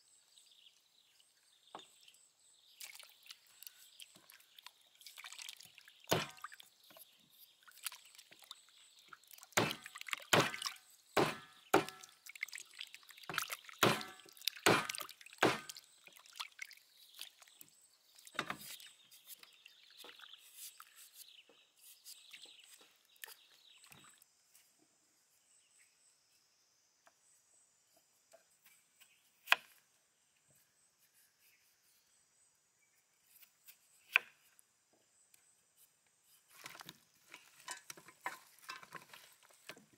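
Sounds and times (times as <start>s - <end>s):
water splashing in metal bowl: 4.0s - 6.7s, 7.7s - 17.5s.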